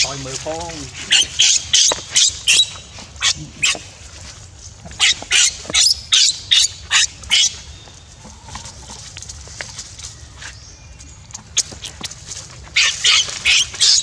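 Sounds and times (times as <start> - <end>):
baby monkey screaming: 1.0 - 3.8, 12.8 - 14.0.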